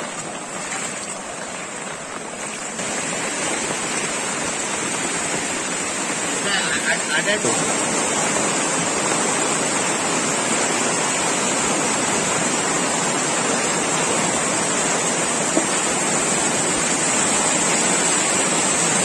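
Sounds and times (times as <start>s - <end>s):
floodwater rushing: 0.0s - 19.0s.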